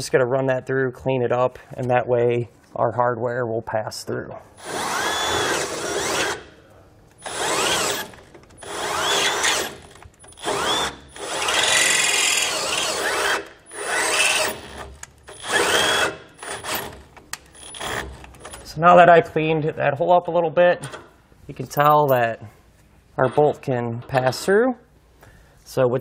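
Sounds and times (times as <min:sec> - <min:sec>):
cordless grinder bursts: 0:04.6 - 0:06.5, 0:07.2 - 0:18.6.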